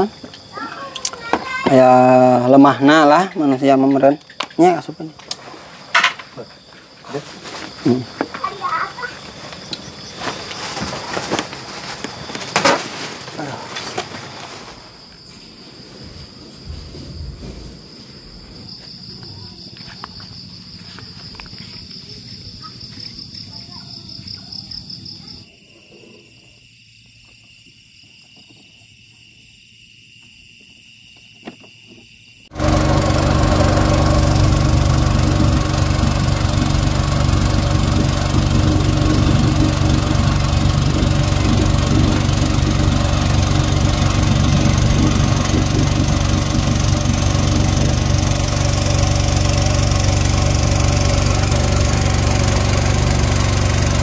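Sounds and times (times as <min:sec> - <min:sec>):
insects chirping: 0:00.0 - 0:54.0
small boat engine droning: 0:32.5 - 0:54.0.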